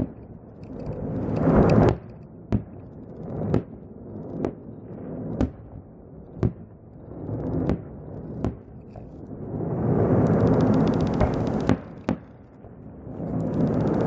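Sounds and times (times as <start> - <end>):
fireworks bangs: 1.1 - 14.0
low rushing noise: 9.1 - 14.0.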